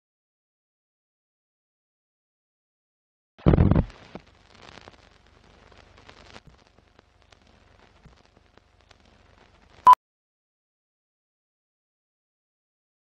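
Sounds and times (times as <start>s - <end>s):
old film crackle and pops: 3.4s - 9.8s.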